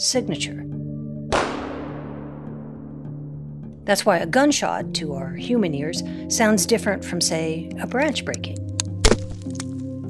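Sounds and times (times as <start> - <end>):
background music: 0.0 - 10.0
gunshot with echo: 1.3 - 3.1.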